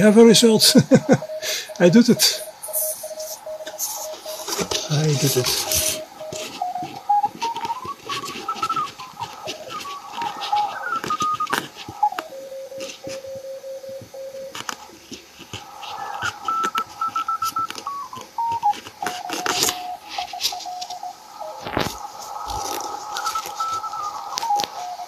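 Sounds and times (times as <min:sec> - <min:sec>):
morse code beeping tones: 0:00.0 - 0:14.9, 0:15.5 - 0:25.0
radio clicks and crackles: 0:00.0 - 0:25.0.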